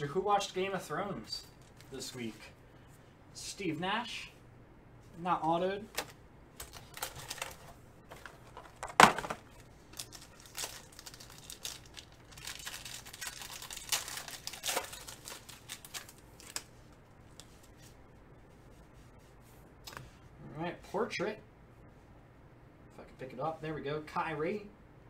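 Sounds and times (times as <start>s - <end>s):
foil wrapper crinkling and tearing: 9.6s - 16.7s.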